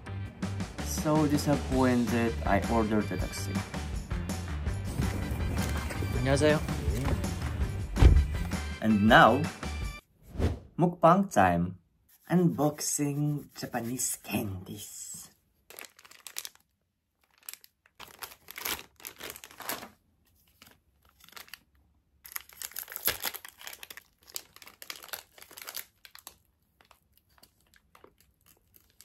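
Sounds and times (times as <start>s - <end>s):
candy wrappers crinkling and tearing: 15.6s - 29.0s.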